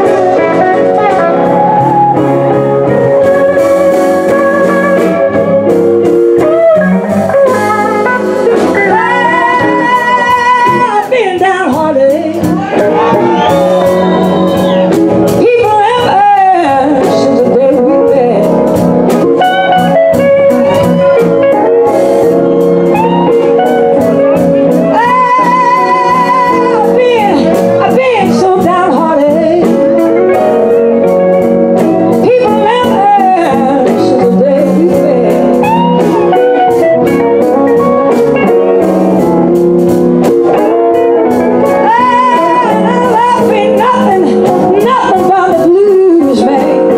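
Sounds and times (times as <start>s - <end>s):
woman singing: 0.0s - 2.1s, 8.5s - 18.7s, 24.7s - 30.1s, 31.8s - 36.0s, 41.6s - 46.9s
drums bass and horns: 0.0s - 46.9s
electric guitars with vibrato: 0.0s - 46.9s.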